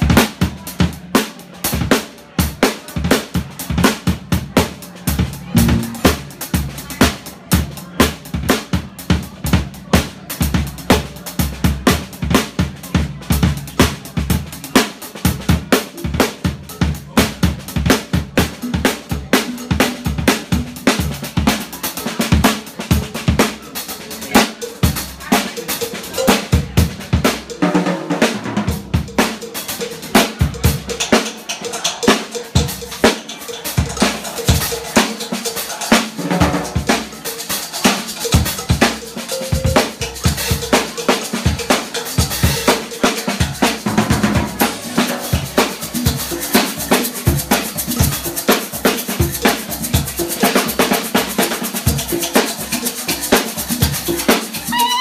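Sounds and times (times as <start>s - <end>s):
drum kit groove: 0.0s - 55.0s
held keyboard note: 5.6s - 6.1s.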